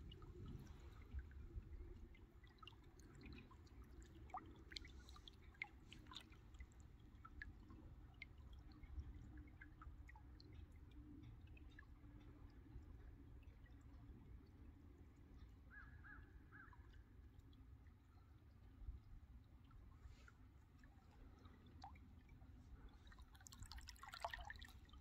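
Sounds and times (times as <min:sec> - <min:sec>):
water dripping and splashing: 0:00.0 - 0:13.9, 0:19.0 - 0:25.0
low steady rumble: 0:00.0 - 0:15.7.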